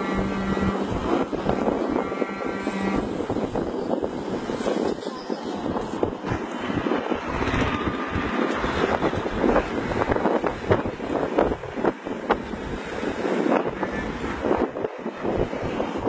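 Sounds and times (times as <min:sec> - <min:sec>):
bus road and engine noise: 0:00.0 - 0:16.0
wind buffeting microphone: 0:00.0 - 0:16.0.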